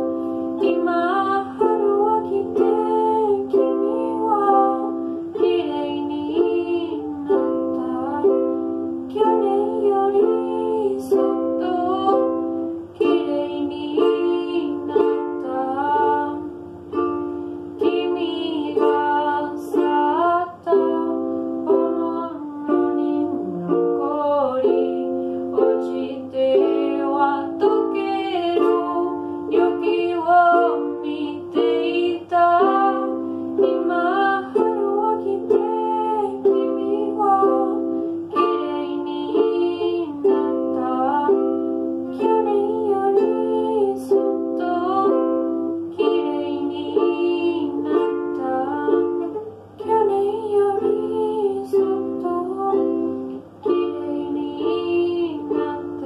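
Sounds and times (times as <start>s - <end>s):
ukulele chords plucked: 0.0s - 56.0s
woman singing: 0.0s - 56.0s.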